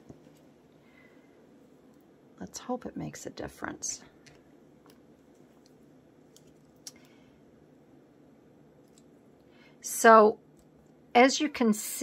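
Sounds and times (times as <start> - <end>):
faint small clicks: 4.2 - 7.2, 8.8 - 9.1.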